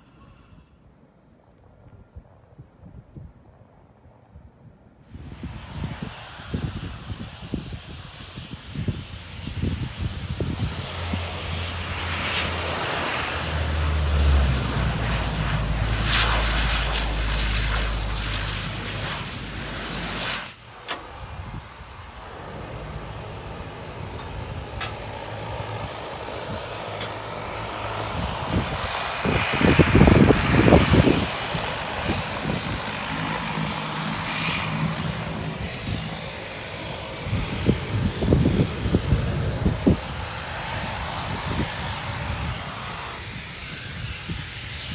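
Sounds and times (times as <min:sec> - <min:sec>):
turboprop engines droning: 0:04.7 - 0:44.9
low hum: 0:09.2 - 0:38.9.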